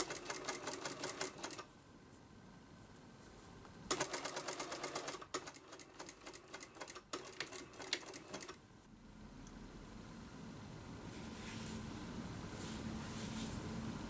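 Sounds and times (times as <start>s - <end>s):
sewing machine stitching: 0.0s - 1.7s, 3.9s - 8.6s.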